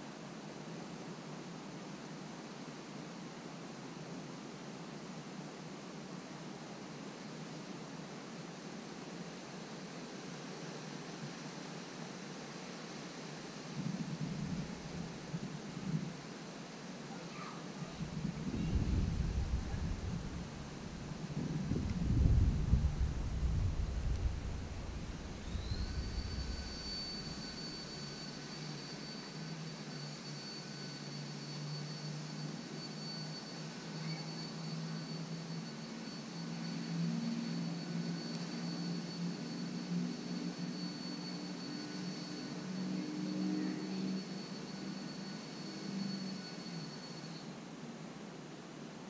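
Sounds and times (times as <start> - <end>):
high-pitched whine: 6.1 - 48.3
aircraft engine hum: 17.8 - 31.1.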